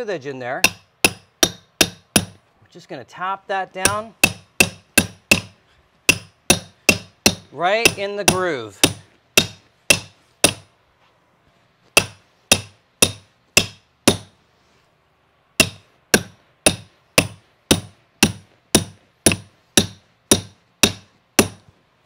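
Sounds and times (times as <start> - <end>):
hammer striking stair tool: 0.6 - 2.4, 3.8 - 10.7, 12.0 - 14.4, 15.6 - 21.7.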